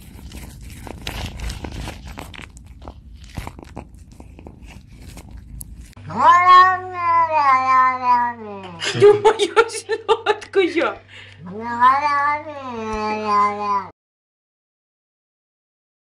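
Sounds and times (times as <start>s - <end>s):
cat chewing with crunching clicks: 0.0s - 6.0s
cat meowing loudly: 6.0s - 8.8s, 11.4s - 13.9s.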